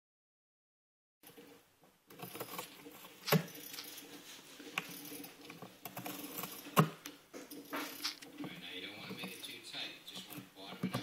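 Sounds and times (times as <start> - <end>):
cat tearing cardboard: 2.2 - 3.6, 5.6 - 7.0.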